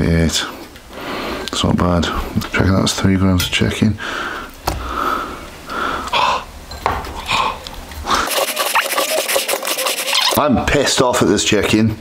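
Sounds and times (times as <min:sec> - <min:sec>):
scratchy rustle: 0:08.2 - 0:10.4.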